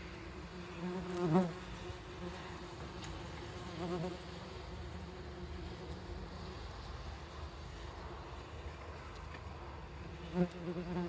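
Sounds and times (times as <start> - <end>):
wasp wings buzzing: 0.0 - 6.7, 10.1 - 11.0.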